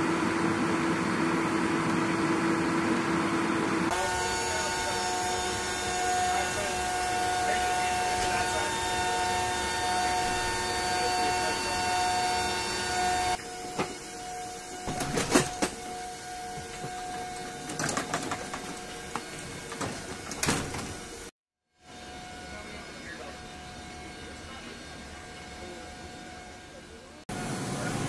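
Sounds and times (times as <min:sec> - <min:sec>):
aircraft cargo hold machine hum: 0:00.0 - 0:21.3, 0:21.9 - 0:28.0.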